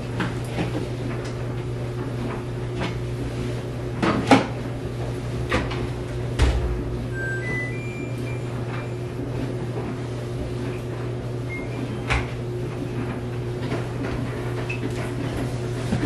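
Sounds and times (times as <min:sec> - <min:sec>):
low appliance hum: 0:00.0 - 0:16.0
appliance panel beeps: 0:06.5 - 0:09.2, 0:11.5 - 0:12.2.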